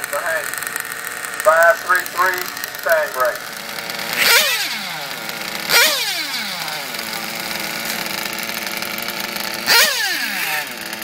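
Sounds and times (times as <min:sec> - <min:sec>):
rc cars high whine: 0:00.0 - 0:11.0.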